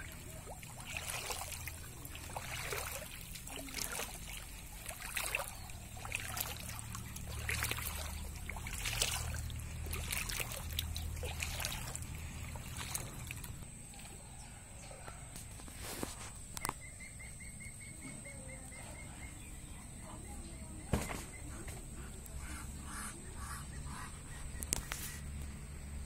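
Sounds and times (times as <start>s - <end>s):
rustles and splashes: 0.0s - 14.3s, 15.3s - 16.8s, 20.9s - 26.0s
low steady rumble: 0.0s - 15.3s
muddy water trickling and sloshing: 0.0s - 16.8s.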